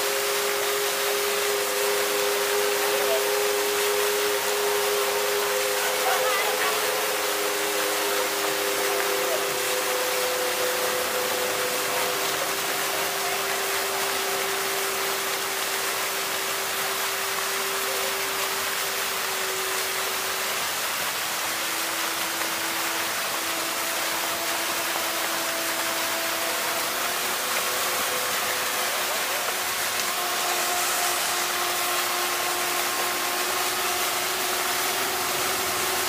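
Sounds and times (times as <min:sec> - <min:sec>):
fountain jets splashing: 0:00.0 - 0:36.0.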